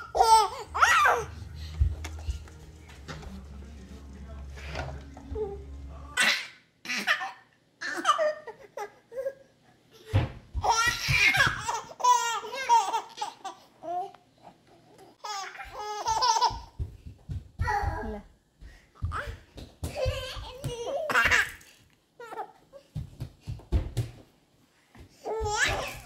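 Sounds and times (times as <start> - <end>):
baby laughing: 0.0 - 1.4, 6.2 - 9.4, 10.6 - 14.0, 15.2 - 16.8, 25.3 - 26.0.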